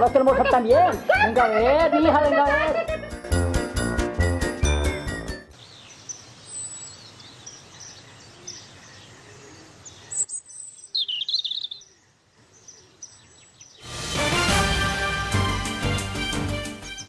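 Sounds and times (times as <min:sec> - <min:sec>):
birds chirping: 0:04.9 - 0:13.9
faint outdoor hiss: 0:05.5 - 0:14.3.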